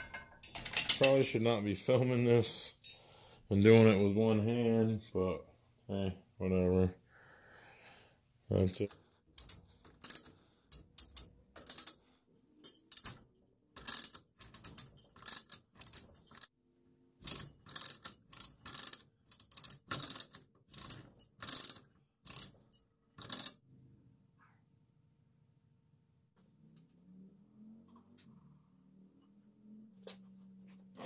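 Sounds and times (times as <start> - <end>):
chain hoist ratchet clicking: 8.8 - 12.0, 13.8 - 16.5, 17.2 - 23.6.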